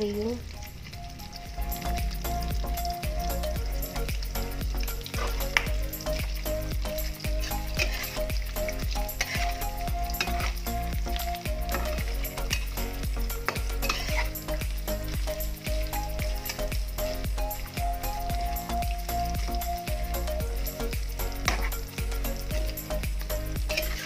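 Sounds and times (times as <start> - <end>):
meat sizzling in oil: 0.0 - 24.0
metal spatula scraping pan: 7.1 - 10.7, 11.7 - 12.8, 13.4 - 14.6, 21.4 - 21.8, 23.7 - 24.0.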